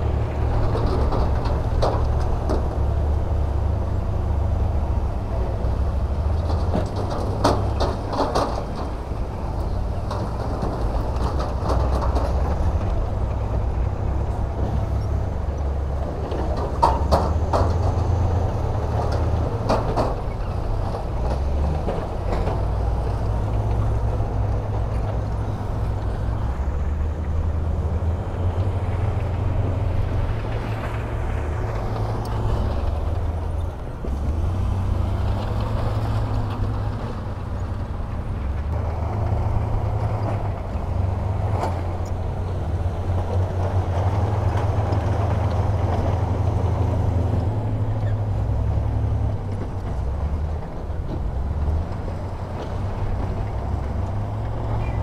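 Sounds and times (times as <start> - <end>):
diesel machinery rumbling: 0.0 - 55.0
metal knocks and clanks: 6.3 - 15.2, 16.0 - 26.1.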